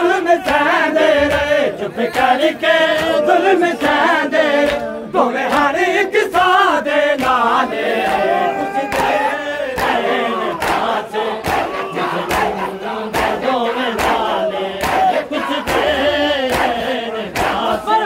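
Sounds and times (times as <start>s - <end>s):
men chanting and shouting: 0.0s - 18.0s
hand slaps on chests: 0.4s - 1.5s, 2.1s - 4.0s, 4.6s - 4.9s, 7.2s - 7.4s, 8.0s - 8.3s, 9.8s - 13.4s, 14.0s - 17.9s.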